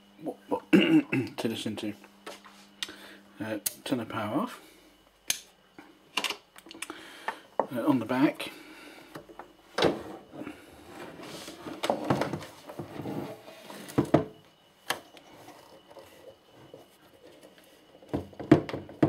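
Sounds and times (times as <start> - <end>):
rubber feet dragging: 9.9 - 14.0.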